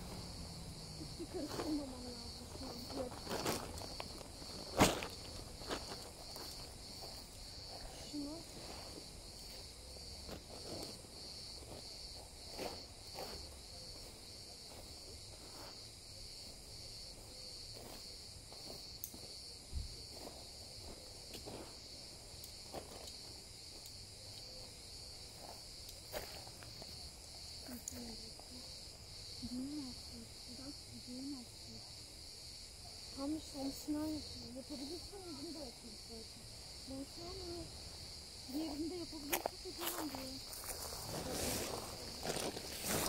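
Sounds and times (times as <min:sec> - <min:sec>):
insects chirping: 0:00.0 - 0:43.0
tent fabric rustling: 0:01.6 - 0:06.7, 0:39.9 - 0:43.0.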